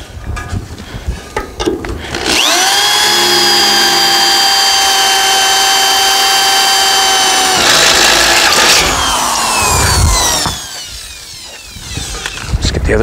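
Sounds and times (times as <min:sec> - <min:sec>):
power drill drilling metal: 0:02.1 - 0:12.7.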